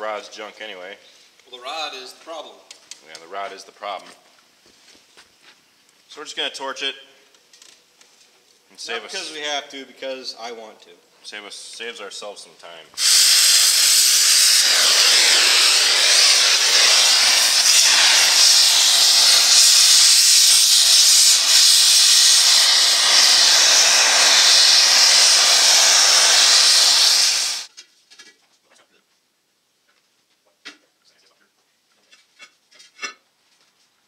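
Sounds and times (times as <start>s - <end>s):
cutting torch hissing: 13.0s - 27.7s.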